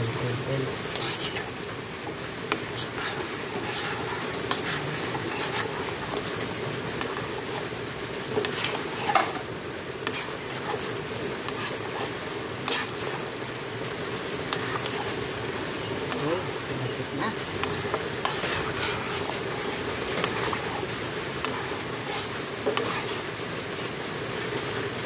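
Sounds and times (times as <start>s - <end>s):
spoon stirring in a metal saucepan: 0.8s - 24.0s
steady hum: 0.9s - 24.1s.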